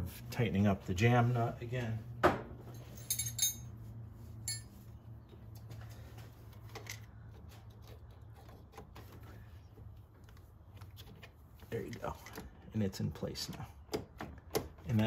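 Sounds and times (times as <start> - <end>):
wrench clinking against metal: 2.8 - 3.8, 4.5 - 4.8.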